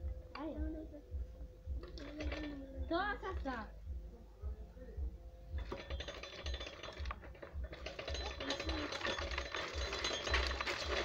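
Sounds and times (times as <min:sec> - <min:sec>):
coffee pulper clattering: 0:05.6 - 0:11.0.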